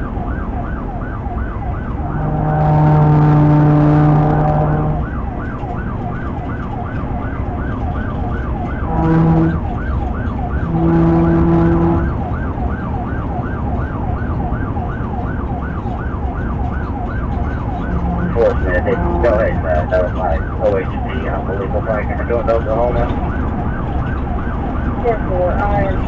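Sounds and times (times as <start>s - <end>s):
police siren yelping: 0.0s - 26.0s
road and engine noise: 0.0s - 26.0s
buzzing horn tone: 2.0s - 5.2s, 8.8s - 9.9s, 10.5s - 12.2s, 17.7s - 20.4s.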